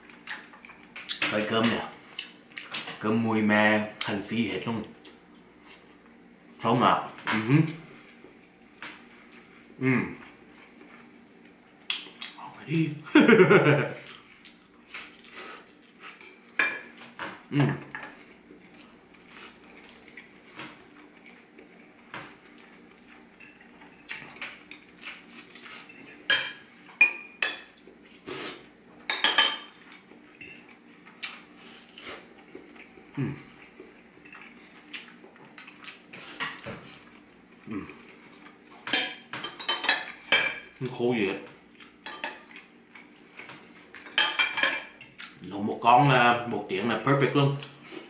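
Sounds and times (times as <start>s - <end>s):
cutlery clinking on dishes: 29.1s - 29.8s, 38.8s - 40.6s, 42.0s - 42.7s.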